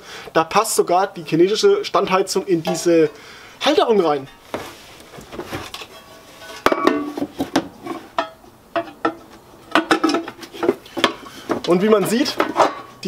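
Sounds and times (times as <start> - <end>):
metal clinks and knocks: 5.7 - 13.0.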